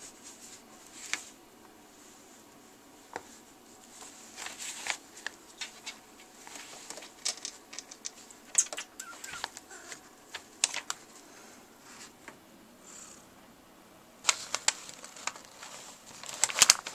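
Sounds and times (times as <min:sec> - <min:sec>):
kitten scratching paper: 0:14.3 - 0:16.9.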